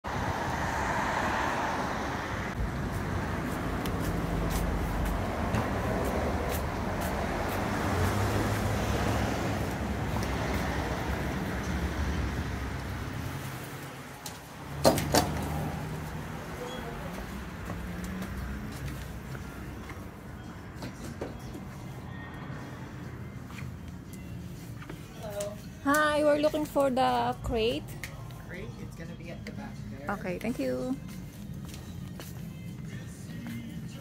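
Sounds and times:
passing cars rumble and hiss: 0.0 - 26.4.

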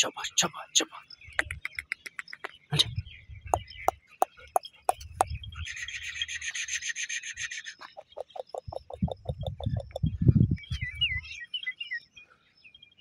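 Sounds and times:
sharp clicks: 1.4 - 2.6
bird trilling: 3.6 - 10.1.

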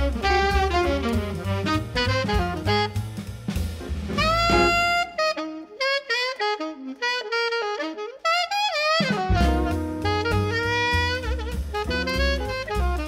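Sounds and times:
bass and drums: 0.0 - 5.4, 9.0 - 13.0
instrumental music lead melody: 0.0 - 13.0.

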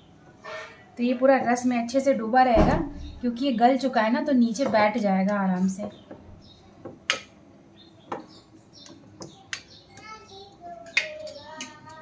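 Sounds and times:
child's voice: 9.2 - 12.0.

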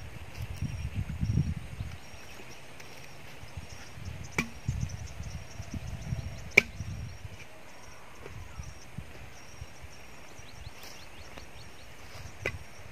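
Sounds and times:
insect chirps: 0.0 - 12.9
wind rumble on microphone: 0.0 - 12.9
metal tool striking soil: 4.3 - 4.8, 6.5 - 6.8, 12.2 - 12.7.

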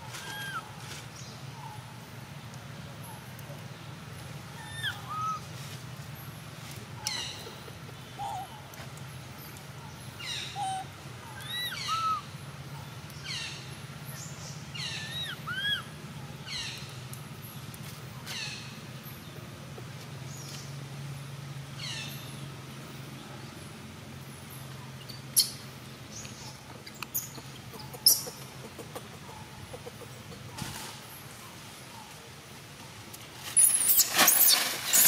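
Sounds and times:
steady low hum: 0.0 - 34.9
birds whistling downward calls: 4.6 - 5.4, 10.2 - 12.3.

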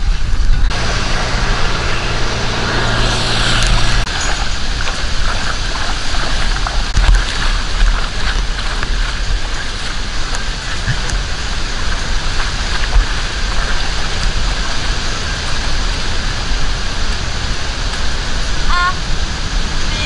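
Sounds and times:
wind buffeting microphone: 0.0 - 20.0
high warbling tone: 0.7 - 4.6.

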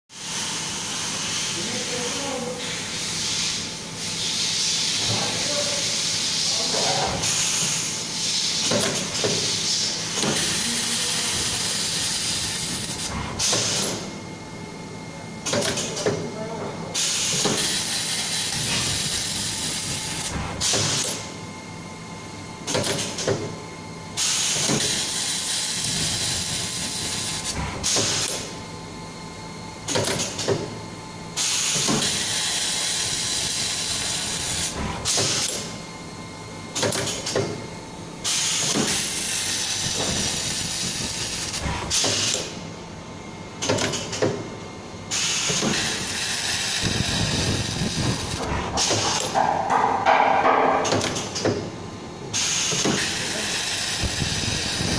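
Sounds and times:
welding machine hiss: 0.2 - 14.1, 17.0 - 21.4, 24.2 - 28.6, 31.3 - 35.8, 38.2 - 42.7, 45.1 - 49.4, 52.3 - 54.9
machine clicks and knocks: 15.4 - 16.2, 22.6 - 23.5, 29.9 - 30.7, 36.8 - 37.6, 43.6 - 44.5, 48.4 - 51.7.

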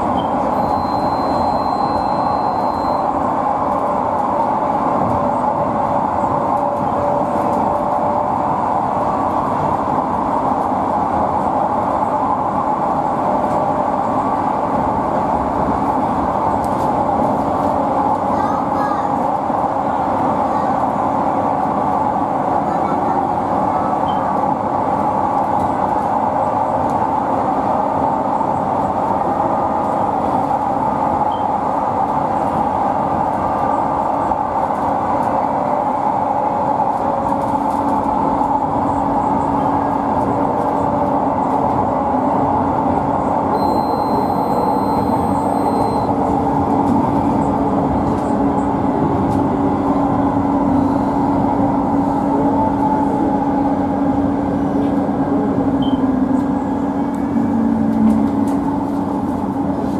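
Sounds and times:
train wheels rolling on rails: 0.0 - 59.9
faint high tone: 43.5 - 46.1.

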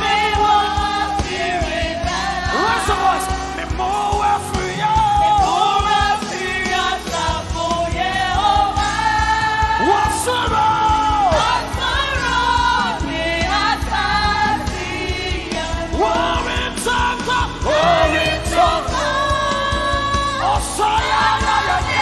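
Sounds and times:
gospel singers with band: 0.0 - 22.0.

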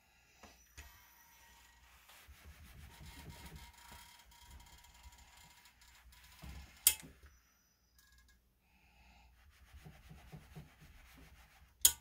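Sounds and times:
steam iron on fabric: 0.6 - 7.1, 9.3 - 12.0
rubbing against fabric: 1.1 - 6.8, 9.4 - 11.8.

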